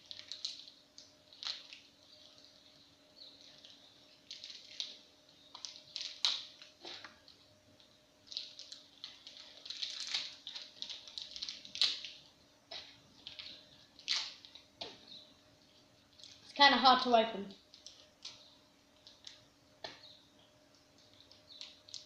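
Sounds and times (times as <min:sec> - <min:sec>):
packet wrapper crinkling: 0:00.0 - 0:02.6, 0:03.4 - 0:06.8, 0:07.8 - 0:12.2, 0:20.8 - 0:22.0.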